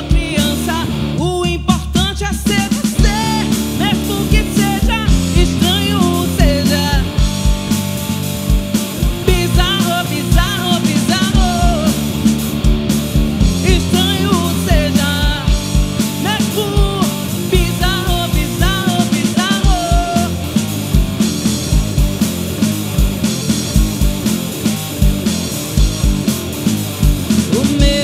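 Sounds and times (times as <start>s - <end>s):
woman singing: 0.0s - 7.1s, 9.2s - 11.9s, 13.6s - 15.6s, 16.2s - 20.3s, 27.5s - 28.0s
distorted electric guitar: 0.0s - 28.0s
drum kit: 0.0s - 28.0s
electric bass: 0.0s - 28.0s.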